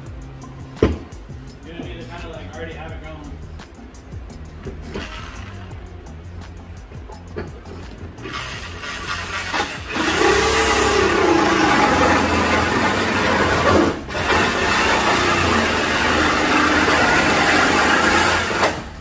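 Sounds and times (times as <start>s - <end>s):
drill with hole saw cutting metal: 8.2s - 19.0s.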